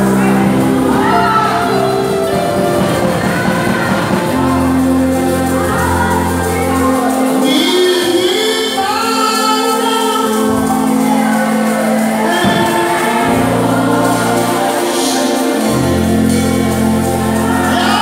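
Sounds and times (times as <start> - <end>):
amplified bass notes: 0.0 - 18.0
voices singing along: 0.0 - 18.0
man singing into microphone: 4.6 - 18.0.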